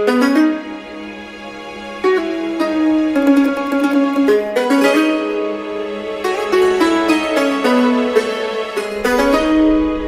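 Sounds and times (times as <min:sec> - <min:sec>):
soft instrumental music: 0:00.0 - 0:10.0.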